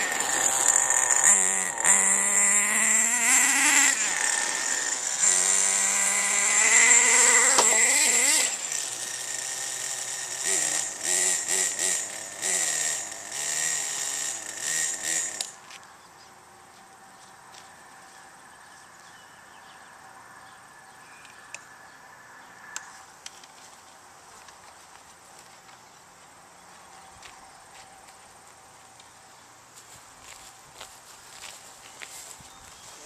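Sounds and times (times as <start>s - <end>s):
radio-controlled car motor whining: 0.0s - 15.6s.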